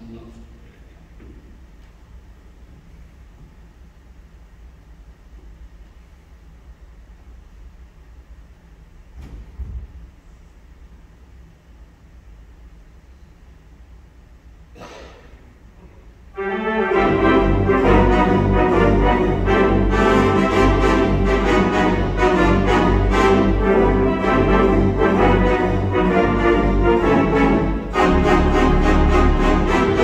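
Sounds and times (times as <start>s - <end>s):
theatre pipe organ playing: 16.3s - 30.0s.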